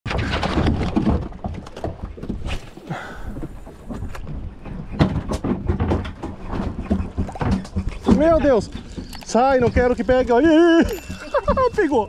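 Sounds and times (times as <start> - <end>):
water slapping boat hull: 0.1 - 12.0
irregular knocks: 3.2 - 12.0.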